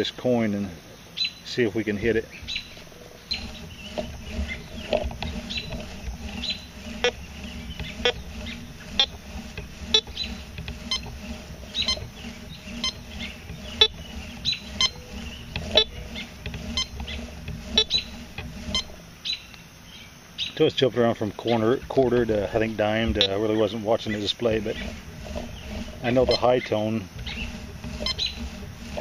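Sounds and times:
metal detector beeps: 10.9s - 11.1s, 12.8s - 13.0s, 14.8s - 16.0s, 16.7s - 17.0s, 18.7s - 19.4s.

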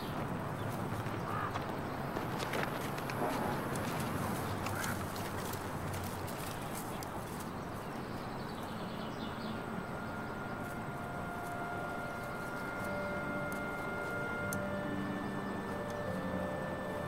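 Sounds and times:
soft outdoor hiss: 0.0s - 17.0s
long held tones: 8.3s - 17.0s.

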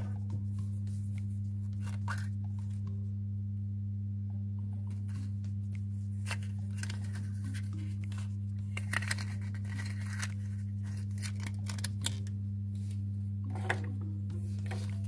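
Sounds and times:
steady low hum: 0.0s - 15.0s
paper leaflet crinkling: 5.0s - 13.0s.

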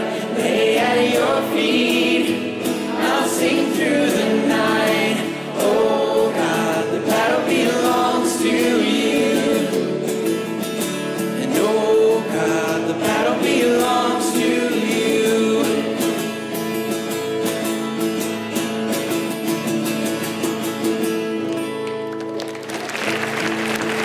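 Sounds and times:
person singing: 0.0s - 16.5s
acoustic guitar: 0.0s - 24.0s
congregation applauding: 21.4s - 24.0s.

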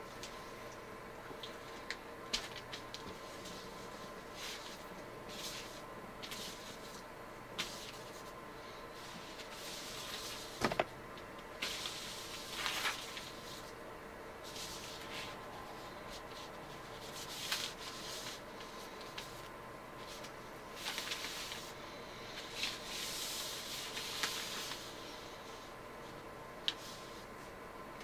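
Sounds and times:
paper rustling: 9.0s - 10.9s, 11.6s - 13.7s, 14.4s - 21.7s, 22.4s - 24.9s.

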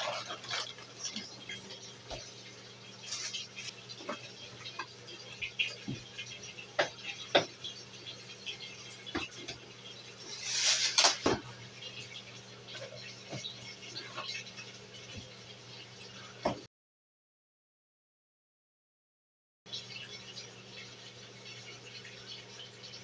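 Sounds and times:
groceries knocking and rustling: 0.0s - 1.4s.

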